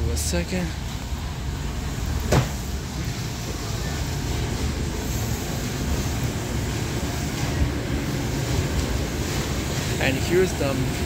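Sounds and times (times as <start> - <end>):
store background rumble and hiss: 0.0 - 11.0
sharp thump: 2.3 - 2.6.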